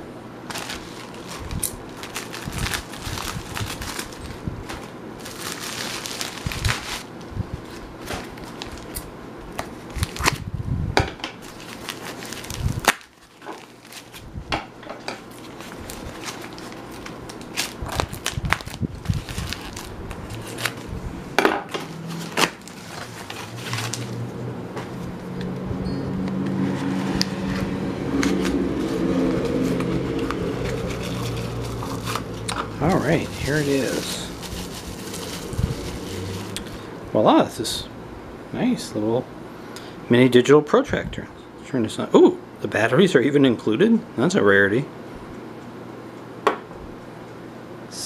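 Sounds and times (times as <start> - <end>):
packaging crinkling and rustling: 0.4 - 10.4, 11.4 - 14.3, 15.0 - 20.9, 21.7 - 25.2, 26.7 - 36.9.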